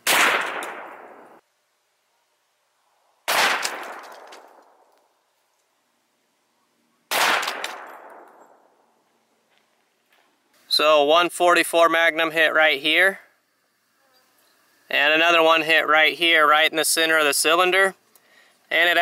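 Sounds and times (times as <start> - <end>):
handgun shots with echo: 0.0 - 1.2, 3.3 - 4.7, 7.1 - 8.6.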